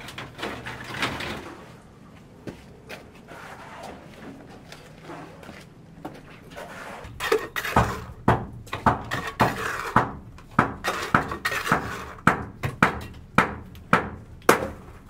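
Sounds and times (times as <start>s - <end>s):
scraping: 3.1s - 10.0s
hard knocks: 7.1s - 14.8s.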